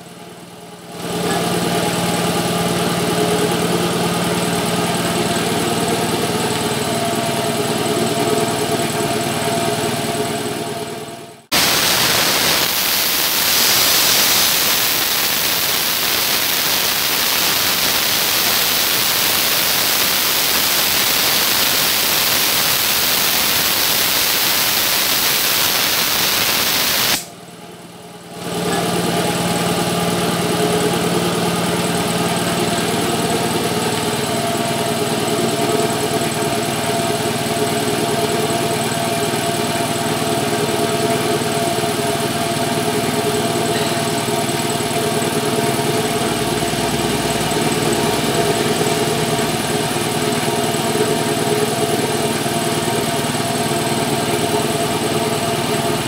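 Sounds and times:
air compressor motor running: 0:00.0 - 0:56.0
compressed air hissing from hose: 0:11.6 - 0:27.3.

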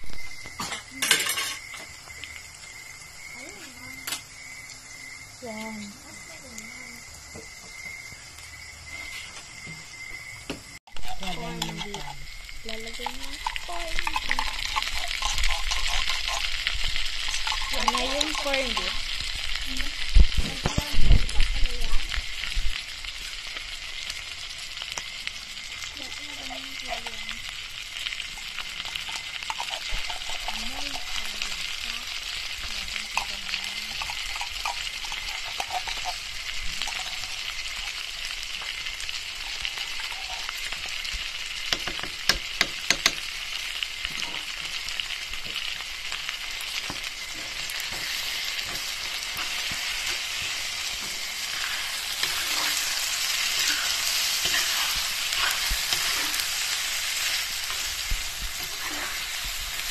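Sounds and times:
meat sizzling in a wok: 0:00.0 - 0:59.9
metal spatula stirring: 0:11.0 - 0:19.1, 0:28.8 - 0:31.6, 0:33.1 - 0:38.0, 0:46.8 - 0:59.9.

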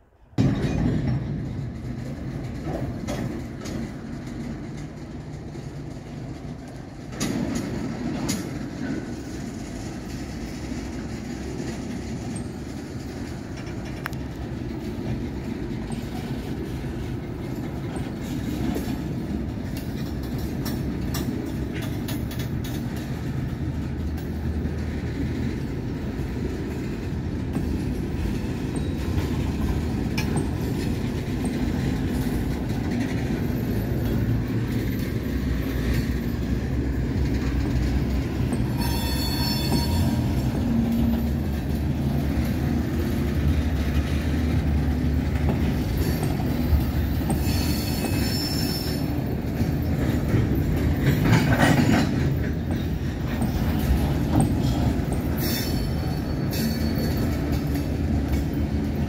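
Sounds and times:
train wheels rumbling on rail: 0:00.0 - 0:59.0
high wheel squeal: 0:38.6 - 0:41.4, 0:47.3 - 0:49.1, 0:54.6 - 0:57.4.

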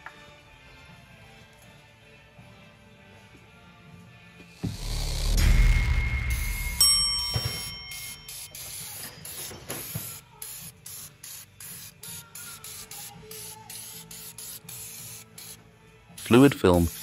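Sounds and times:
spray can hissing in bursts: 0:07.9 - 0:17.0.

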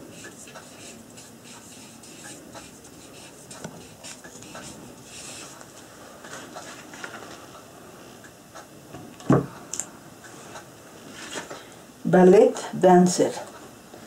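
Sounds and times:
marker scratching on paper: 0:00.1 - 0:05.6.

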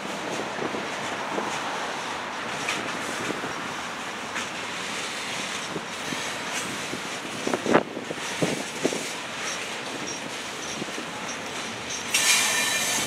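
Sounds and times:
freight train rolling: 0:00.0 - 0:13.0
train cars clanking: 0:00.0 - 0:13.0
wind on microphone: 0:05.7 - 0:09.1.

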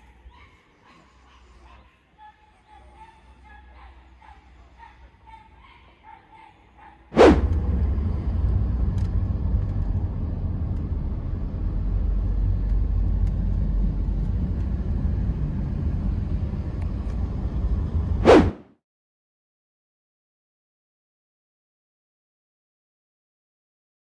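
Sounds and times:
road and engine noise in car cabin: 0:07.4 - 0:18.3.

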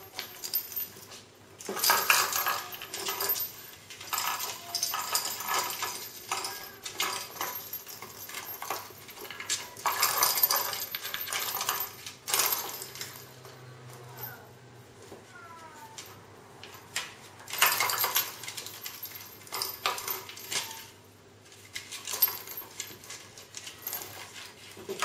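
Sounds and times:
toy rattling on tile floor: 0:00.0 - 0:14.6, 0:15.6 - 0:25.0.

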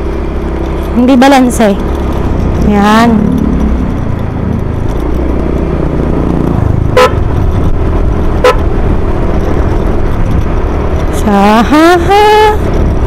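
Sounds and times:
scooter engine rumble: 0:00.0 - 0:13.0
wind noise: 0:01.7 - 0:13.0
scooter horn beeps: 0:06.9 - 0:07.2.

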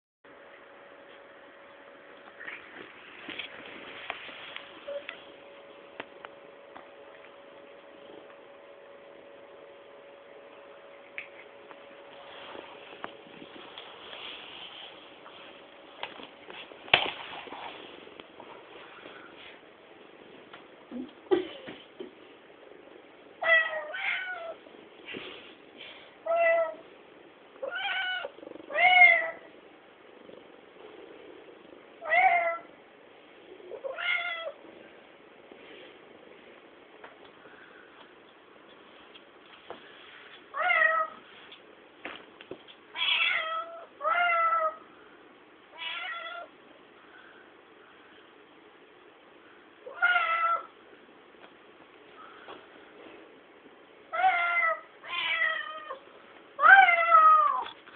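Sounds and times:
cat meowing: 0:43.0 - 0:44.8, 0:45.8 - 0:46.5, 0:49.9 - 0:50.7, 0:54.1 - 0:56.0.

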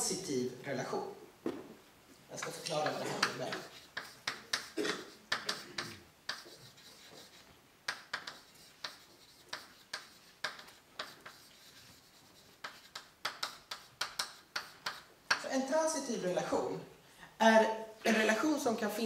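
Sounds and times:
chalk tapping and scraping on blackboard: 0:02.4 - 0:15.5.

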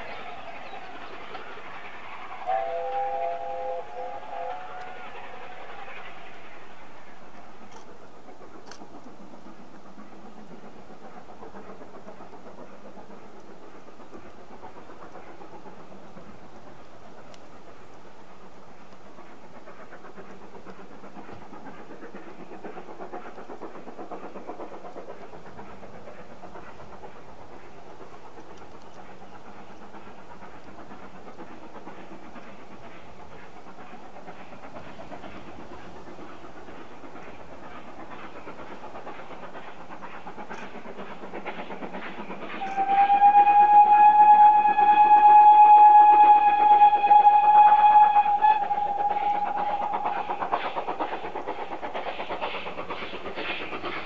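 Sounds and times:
steam locomotive rushing noise: 0:00.0 - 0:54.0
steam whistle: 0:02.2 - 0:06.1, 0:42.6 - 0:50.2.

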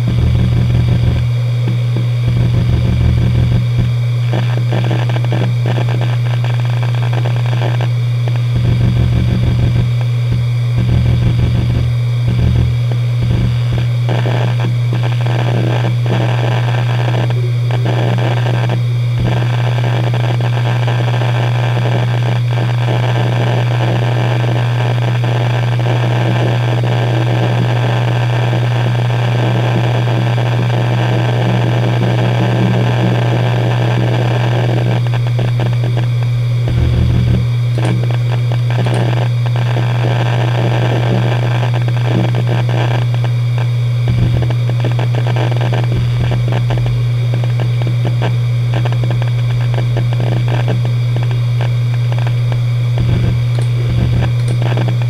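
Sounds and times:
low thumps: 0:00.0 - 0:01.4, 0:08.5 - 0:13.8, 0:35.7 - 0:39.0, 0:44.1 - 0:44.6, 0:52.8 - 0:55.0
hard drive spinning hum: 0:00.0 - 0:55.0
hard drive heads clicking: 0:35.4 - 0:39.2, 0:48.8 - 0:55.0.

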